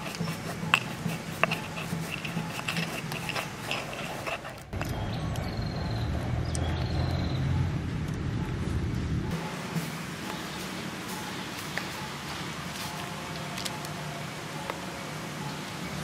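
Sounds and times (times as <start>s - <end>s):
pestle grinding peppercorns: 0.0s - 5.2s.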